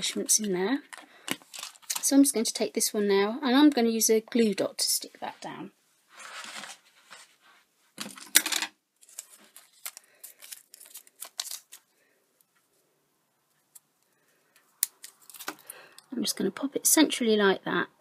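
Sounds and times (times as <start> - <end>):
paper rustle: 1.3 - 2.1, 6.1 - 8.2, 9.0 - 11.9.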